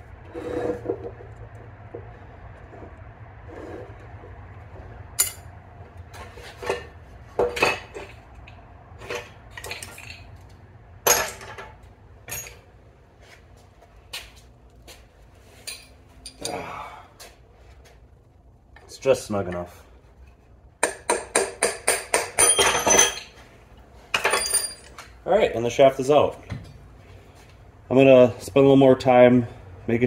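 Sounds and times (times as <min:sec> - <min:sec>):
metal scrape: 0:00.2 - 0:01.3
hammer clinking on metal: 0:20.8 - 0:23.3.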